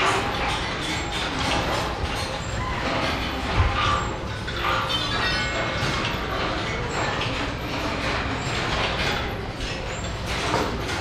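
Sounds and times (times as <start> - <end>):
steady noisy background: 0.0 - 11.0.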